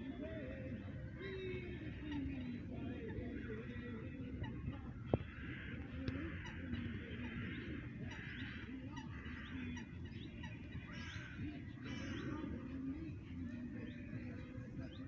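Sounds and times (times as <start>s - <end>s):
honking calls: 1.2s - 12.6s.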